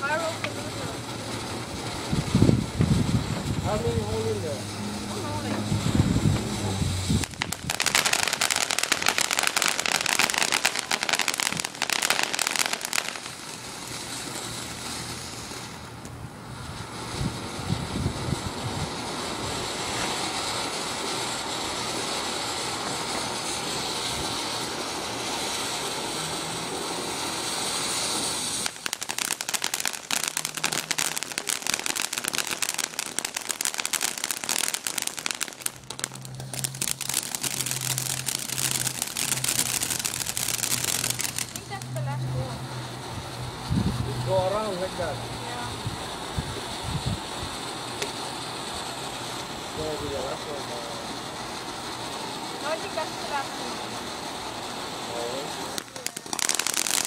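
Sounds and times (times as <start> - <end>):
firework fountain crackling hiss: 0.0 - 57.0.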